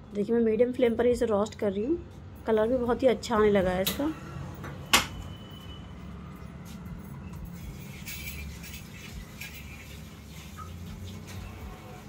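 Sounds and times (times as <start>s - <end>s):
spoon scraping and rustling in pot: 7.6s - 12.0s.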